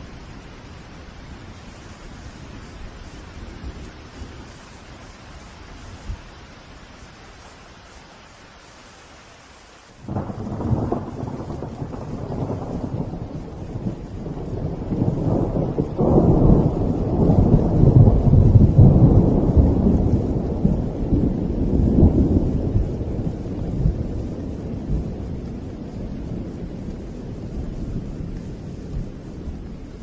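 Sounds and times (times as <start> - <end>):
rain hiss: 0.0 - 30.0
thunder rumbling: 10.0 - 30.0.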